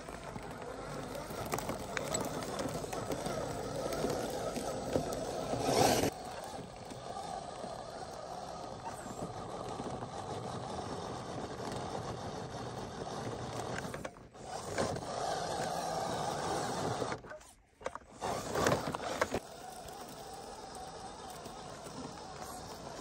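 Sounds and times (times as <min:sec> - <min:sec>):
electric motor and gearbox whining: 0:00.0 - 0:23.0.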